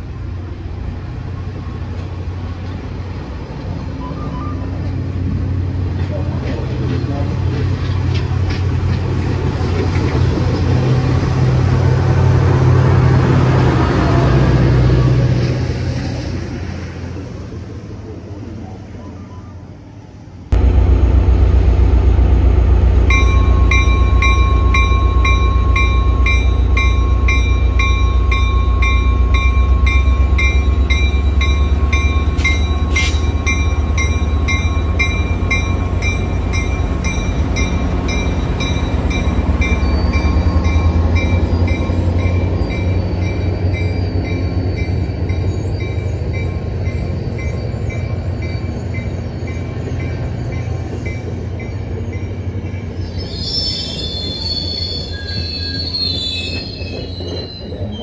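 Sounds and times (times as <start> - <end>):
diesel locomotive engine rumbling: 0.0 - 58.0
locomotive bell ringing: 23.0 - 58.0.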